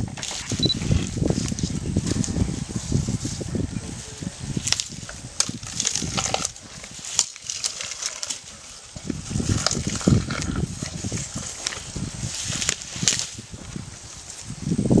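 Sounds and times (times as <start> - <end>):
elephant chewing grass stalks: 0.1 - 14.7.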